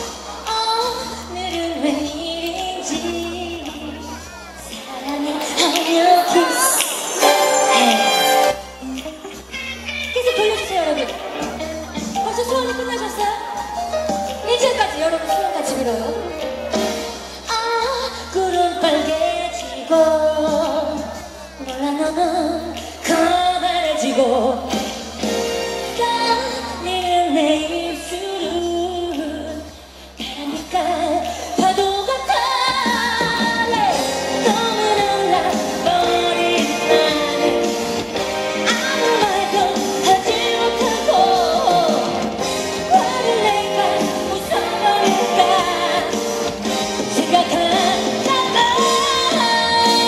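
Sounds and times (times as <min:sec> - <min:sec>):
woman singing into a microphone: 0:00.0 - 0:08.6, 0:10.0 - 0:13.8, 0:14.4 - 0:16.5, 0:17.3 - 0:25.0, 0:25.8 - 0:50.0
pop backing track: 0:00.0 - 0:50.0.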